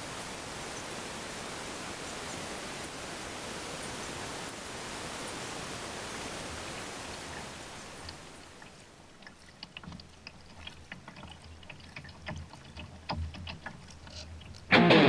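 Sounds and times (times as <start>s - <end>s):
steady hiss: 0.0s - 8.9s
small splashes: 6.0s - 14.7s
water dripping off paddle: 7.1s - 14.7s.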